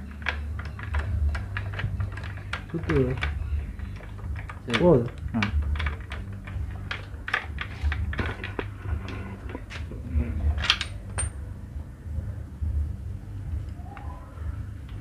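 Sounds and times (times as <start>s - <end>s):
tools and metal parts clinking: 0.0s - 11.4s.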